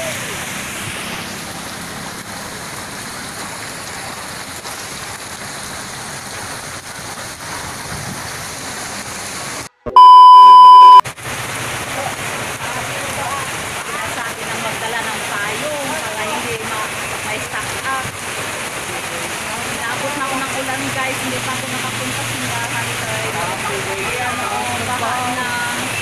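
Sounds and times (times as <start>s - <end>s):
rain pouring onto road: 0.0s - 9.7s, 11.1s - 26.0s
electronic beep: 9.9s - 11.0s.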